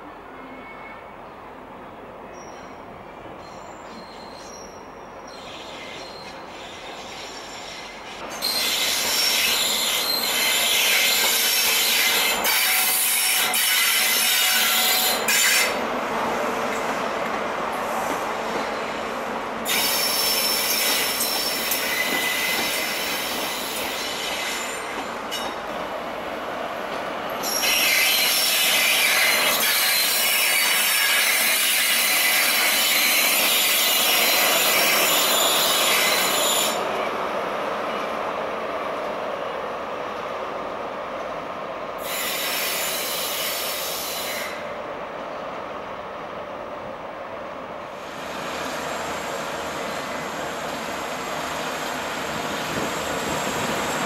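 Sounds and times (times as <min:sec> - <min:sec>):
train rumbling over rails: 0:00.0 - 0:54.0
wheels squealing: 0:03.4 - 0:12.1.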